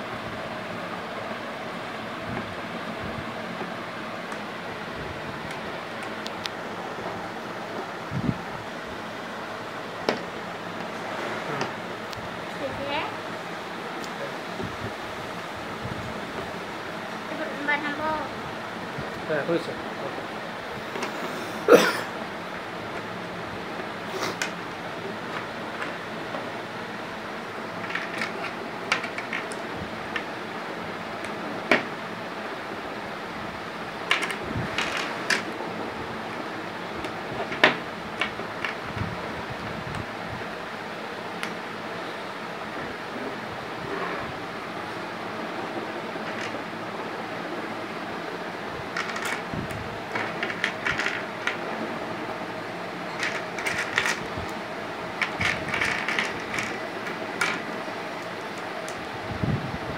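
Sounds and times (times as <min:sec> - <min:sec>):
background fan hiss: 0:00.0 - 0:59.9
steady background hum: 0:00.0 - 0:59.9
plastic building blocks clicking: 0:27.8 - 0:30.3, 0:49.0 - 0:49.4, 0:50.2 - 0:51.6, 0:53.2 - 0:54.2, 0:55.2 - 0:57.7.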